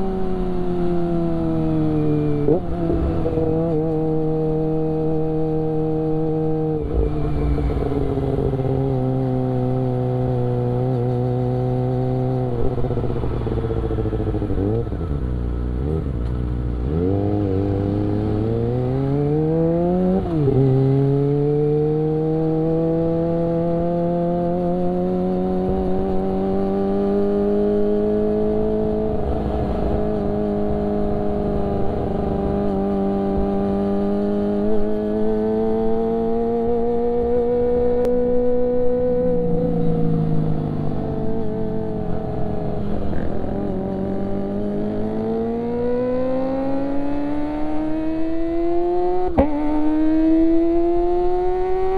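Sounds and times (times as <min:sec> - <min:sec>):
motorcycle engine revving: 0:00.0 - 0:51.9.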